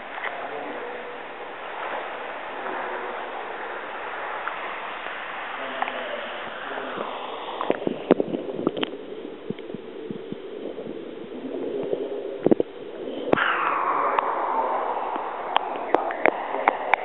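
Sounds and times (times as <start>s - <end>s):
water splashing: 0.0s - 9.0s
dull underwater hum: 0.0s - 17.0s.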